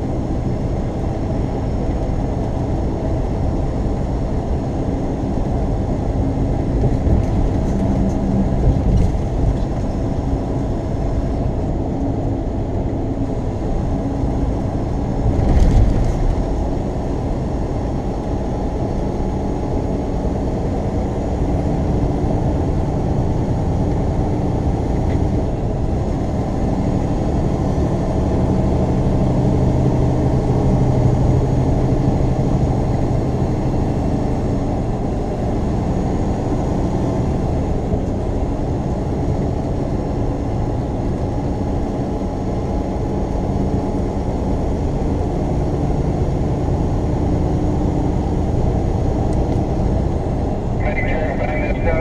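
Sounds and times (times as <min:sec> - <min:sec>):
truck engine and tyre drone: 0:00.0 - 0:52.0
low hum: 0:50.5 - 0:52.0.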